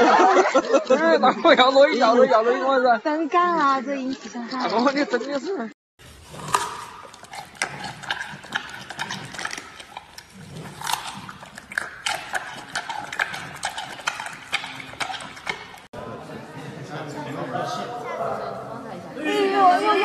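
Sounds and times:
panda chewing bamboo: 6.0 - 15.9.

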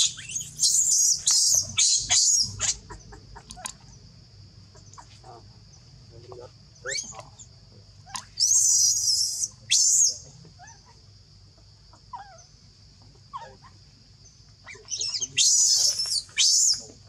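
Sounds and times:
baby monkey screaming: 0.0 - 3.8, 8.0 - 11.0, 14.6 - 16.8.

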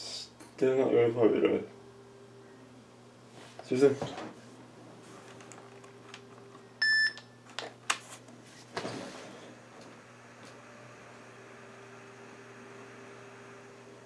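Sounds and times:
laptop electronic beep: 6.8 - 7.2.

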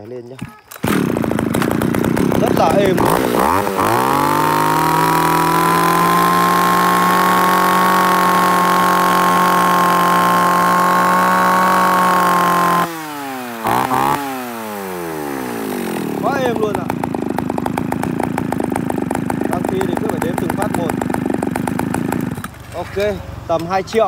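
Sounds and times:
chainsaw engine revving: 0.6 - 22.9.

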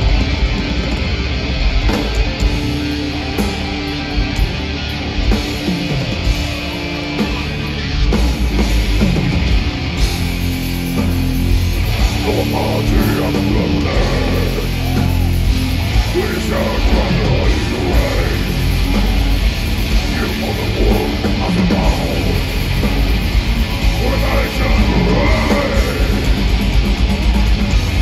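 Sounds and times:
bass: 0.0 - 28.0
distorted guitars: 0.0 - 28.0
drums: 0.0 - 28.0
shouted vocals: 12.1 - 19.3, 19.9 - 26.5.

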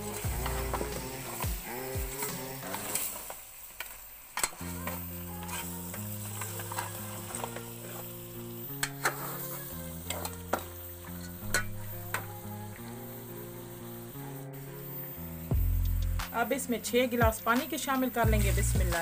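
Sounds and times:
soft background music: 0.0 - 3.1, 4.5 - 19.0
meat sizzling in oil: 0.0 - 19.0
ladle scraping a metal pot: 8.8 - 10.4, 11.0 - 12.0.

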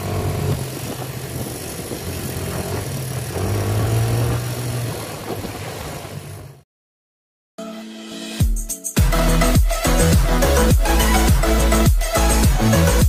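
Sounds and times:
atv engine humming: 0.0 - 6.6, 9.2 - 13.0.

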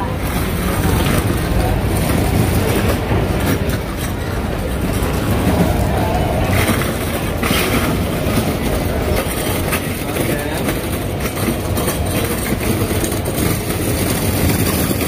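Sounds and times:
food court rumble: 0.0 - 15.0
indistinct voices: 0.0 - 15.0.

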